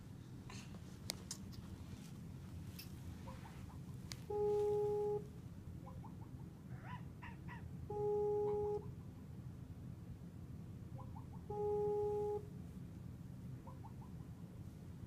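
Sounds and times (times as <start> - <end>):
video call ringing beep: 4.3 - 5.3, 7.9 - 8.8, 11.5 - 12.5.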